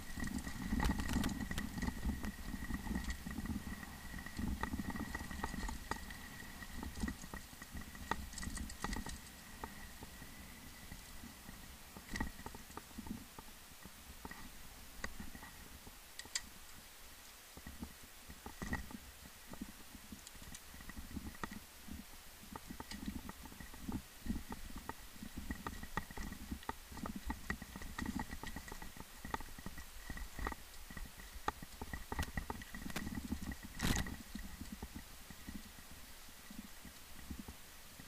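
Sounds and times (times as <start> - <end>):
wheels clattering on stones: 0.0 - 10.1
bike rumbling on rocky trail: 0.0 - 11.4.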